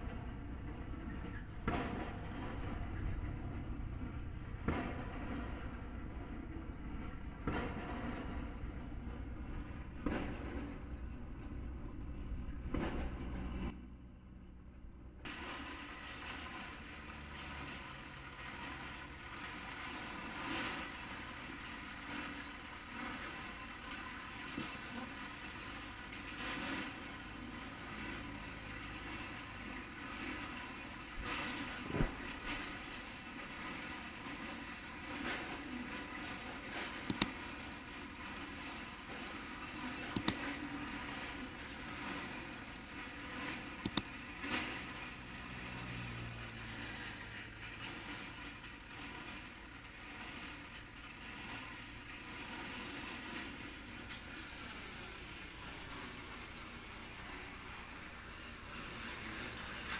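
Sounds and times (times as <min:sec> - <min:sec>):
sharp clicks: 0:37.1 - 0:37.3, 0:40.2 - 0:40.4, 0:43.9 - 0:44.1.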